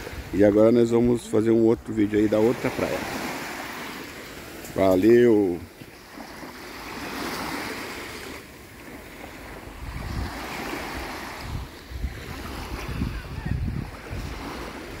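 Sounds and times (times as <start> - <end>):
small waves lapping on sand: 0.0 - 15.0
wind buffeting microphone: 9.6 - 15.0.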